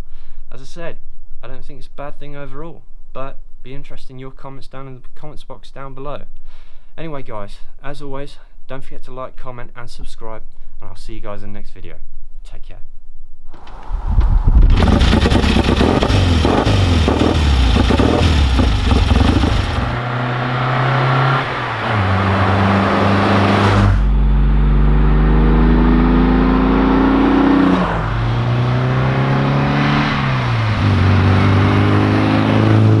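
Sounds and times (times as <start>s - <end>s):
car accelerating through gears: 14.7s - 33.0s
car engines revving hard: 14.7s - 33.0s.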